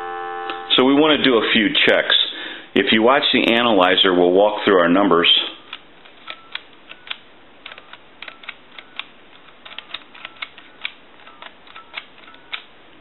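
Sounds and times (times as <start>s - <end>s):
phone keypad button clicks: 6.2s - 9.1s, 9.7s - 12.7s.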